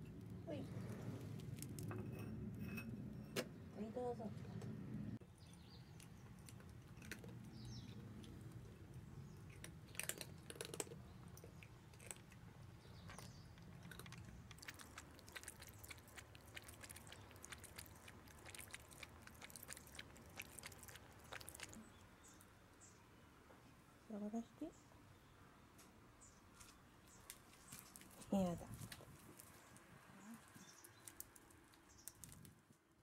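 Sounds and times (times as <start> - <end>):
cats crunching food: 5.7 - 21.8
cat lapping water: 13.7 - 22.0.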